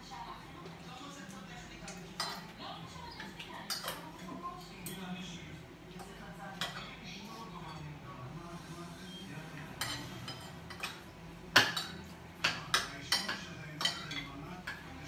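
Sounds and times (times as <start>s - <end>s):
cutlery clinking on plates: 1.9s - 2.5s, 3.1s - 5.0s, 6.0s - 7.9s, 9.7s - 15.0s.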